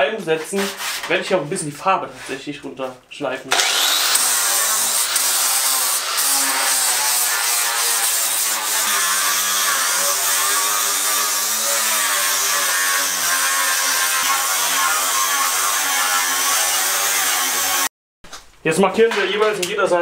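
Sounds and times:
angle grinder grinding metal: 3.5 - 17.9.

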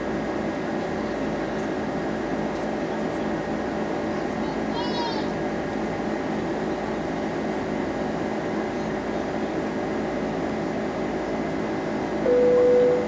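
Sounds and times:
aircraft cabin engine hum: 0.0 - 13.0
clear chime tone: 12.3 - 13.0.

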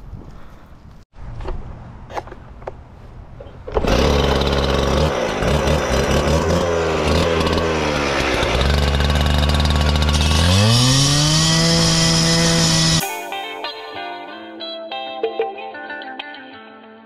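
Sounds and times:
cut-off saw engine revving: 3.8 - 13.0.

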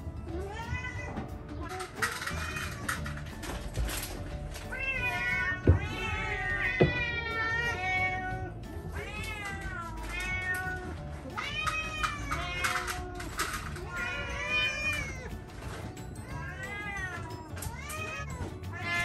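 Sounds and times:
cats meowing: 0.2 - 19.0
sharp knocks: 5.6 - 6.0, 6.7 - 7.1.

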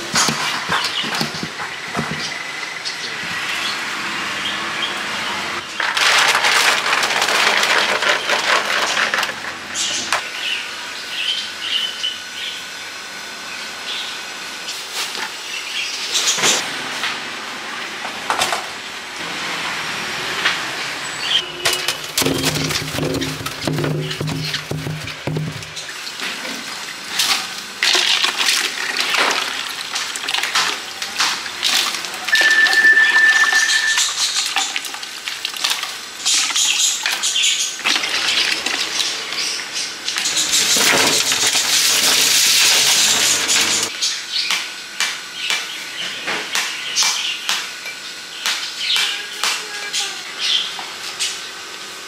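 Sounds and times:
fruit and plastic baskets clattering: 0.0 - 3.0, 5.6 - 10.2, 21.5 - 43.9
brief steady high tone: 32.3 - 34.1.

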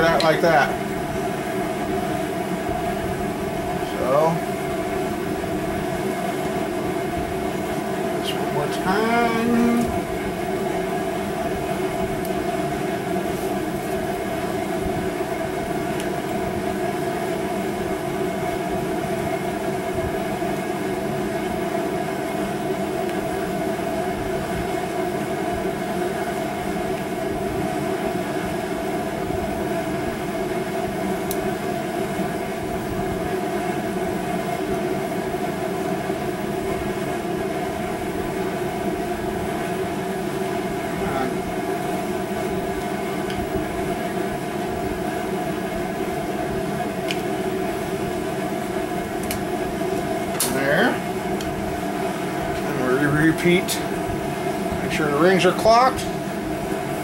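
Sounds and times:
mechanical drone with held tones: 8.1 - 16.1, 38.0 - 57.0.

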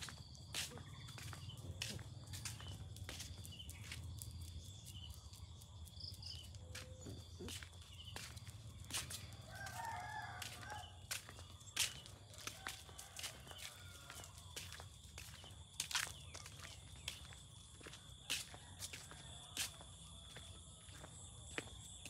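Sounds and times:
rooster crowing: 9.4 - 11.4, 12.2 - 14.8.

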